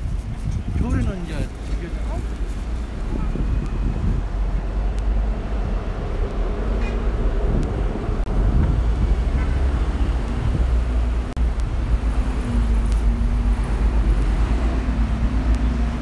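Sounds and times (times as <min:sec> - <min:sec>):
traffic rumbling past: 0:00.0 - 0:16.0.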